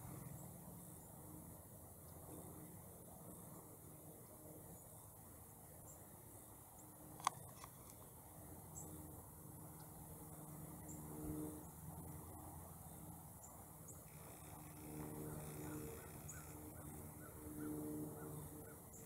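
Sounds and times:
low droning hum: 0.0s - 19.0s
faint bird chirps: 13.0s - 19.0s.

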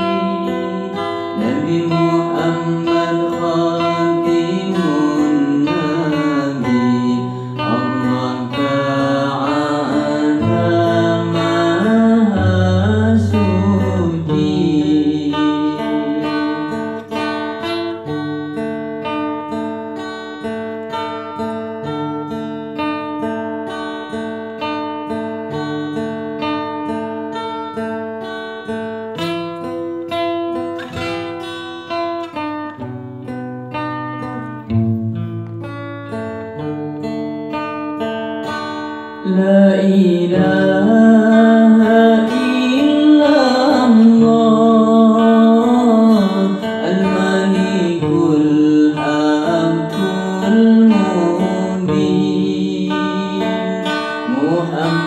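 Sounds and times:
man singing: 0.0s - 17.8s, 39.2s - 55.0s
acoustic guitar picking: 0.0s - 55.0s.

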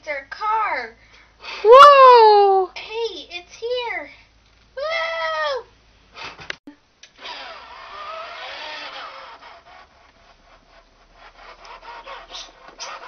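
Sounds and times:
toy car rubbing on fabric: 7.2s - 13.0s
light scratchy ticks: 8.4s - 13.0s.

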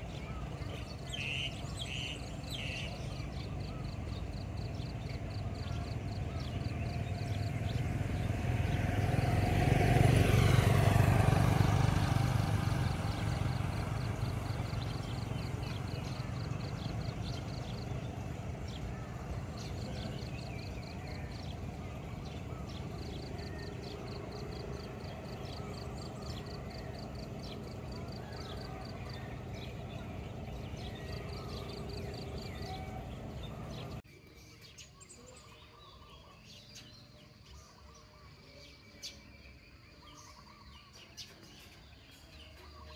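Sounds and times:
light traffic noise: 0.0s - 34.0s
motor vehicle passing: 0.0s - 34.0s.

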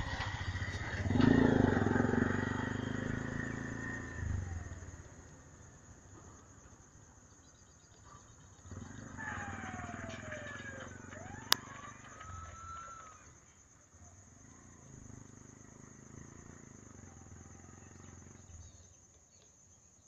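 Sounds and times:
vehicle passing by: 0.0s - 5.9s, 8.6s - 13.1s, 14.3s - 18.8s
vehicle approaching with whine: 0.0s - 6.8s, 8.3s - 18.9s
faint insect chirping: 0.0s - 20.0s.

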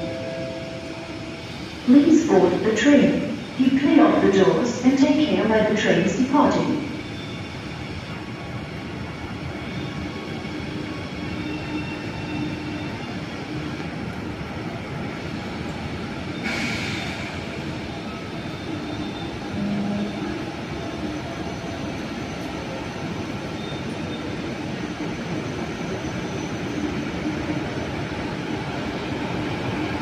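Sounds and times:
train rumbling along platform: 0.0s - 30.0s
short hiss of air: 16.4s - 17.4s.

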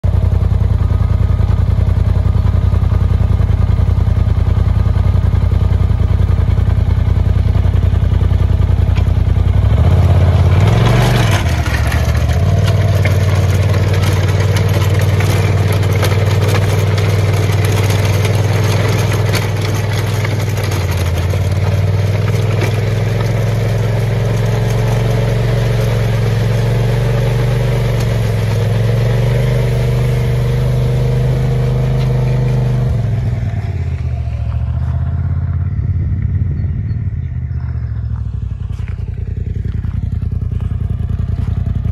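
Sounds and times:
utility vehicle engine: 0.0s - 41.9s
blade scraping through gravel: 10.6s - 33.4s
stones rattling: 10.8s - 29.8s.

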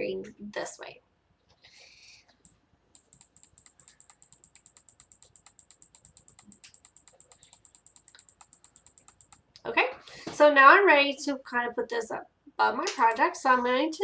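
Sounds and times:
computer mouse clicking: 2.3s - 9.6s.

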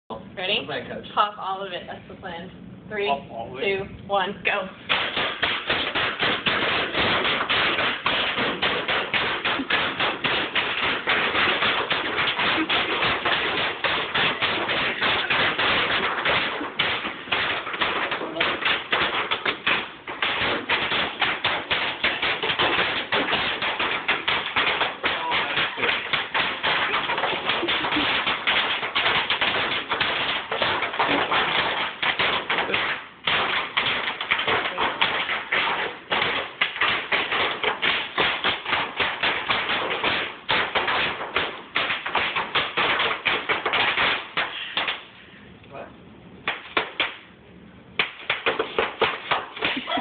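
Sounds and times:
bubble wrap popping underfoot: 4.9s - 44.8s.

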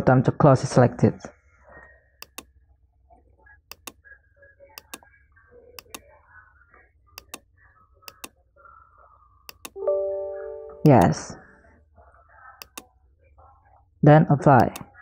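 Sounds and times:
faint low hum: 1.3s - 15.0s
computer mouse clicks: 2.2s - 2.5s, 3.7s - 4.0s, 4.8s - 5.1s, 5.8s - 6.1s, 7.2s - 7.5s, 8.1s - 8.4s, 9.5s - 9.8s, 12.6s - 12.9s, 14.6s - 14.9s.

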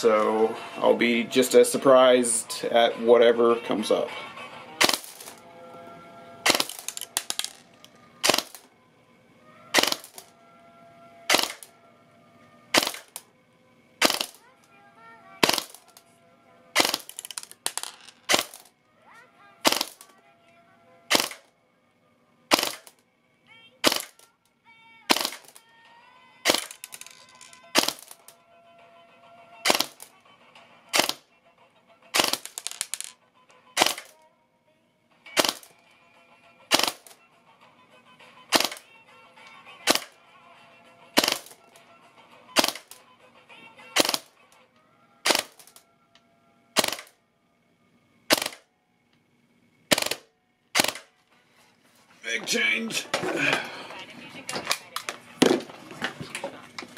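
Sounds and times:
faint music: 0.0s - 56.9s
airsoft gun shots cracking: 4.8s - 5.4s, 6.4s - 7.5s, 8.2s - 8.6s, 9.7s - 10.2s, 11.3s - 11.7s, 12.7s - 13.2s, 14.0s - 14.4s, 15.4s - 15.9s, 16.8s - 18.7s, 19.6s - 20.1s, 21.1s - 21.5s, 22.5s - 23.0s, 23.8s - 24.2s, 25.1s - 25.6s, 26.4s - 26.8s, 27.7s - 28.3s, 29.6s - 30.1s, 30.9s - 31.2s, 32.1s - 33.0s, 33.8s - 34.2s, 35.4s - 35.7s, 36.7s - 37.2s, 38.5s - 38.9s, 39.8s - 40.2s, 41.2s - 41.6s, 42.6s - 43.0s, 44.0s - 44.3s, 45.2s - 45.8s, 46.8s - 47.2s, 48.3s - 48.7s, 49.9s - 51.1s.

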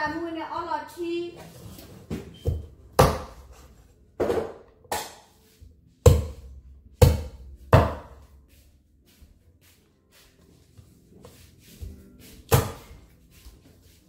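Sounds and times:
knife chopping on wooden board: 6.1s - 6.4s, 7.0s - 8.2s, 12.5s - 12.9s.

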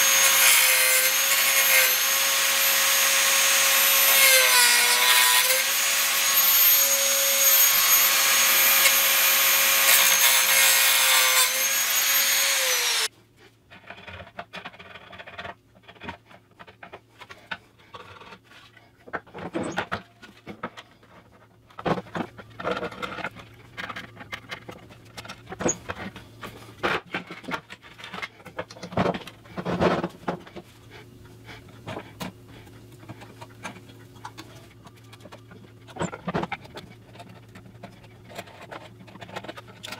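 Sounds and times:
rotary tool grinding wood: 0.0s - 13.1s.

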